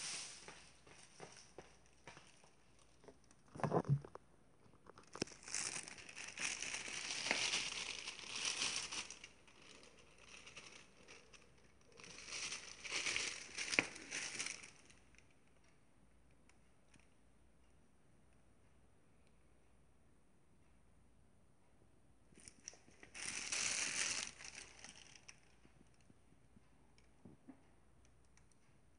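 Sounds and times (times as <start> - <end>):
rustling and crinkling: 0.0 - 15.6, 22.3 - 28.8.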